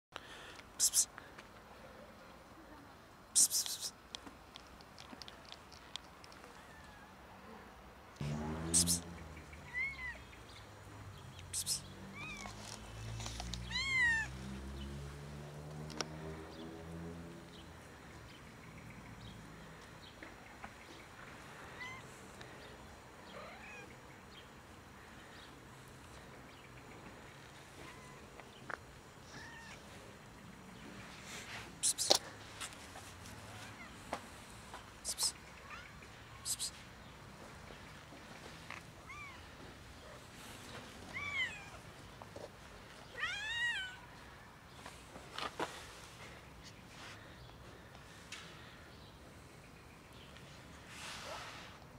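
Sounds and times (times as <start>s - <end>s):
cat meowing: 9.6s - 10.2s, 13.7s - 14.3s, 23.3s - 23.9s, 27.8s - 28.3s, 29.2s - 29.8s, 39.0s - 39.5s, 41.1s - 41.8s, 43.2s - 44.0s.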